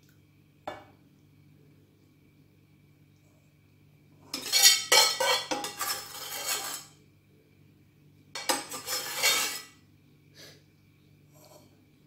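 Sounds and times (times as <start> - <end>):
spoon scraping on dishware: 4.3 - 7.0, 8.4 - 9.8, 11.3 - 11.7.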